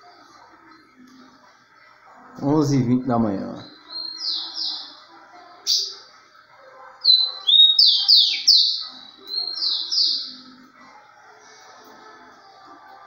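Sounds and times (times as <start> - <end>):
sparrow singing high whistles: 7.0 - 10.4.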